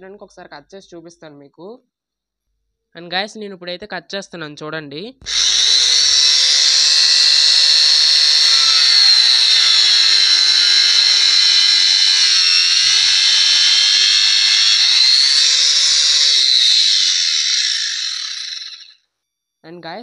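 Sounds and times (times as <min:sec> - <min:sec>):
angle grinder cutting wood: 0:05.2 - 0:19.0.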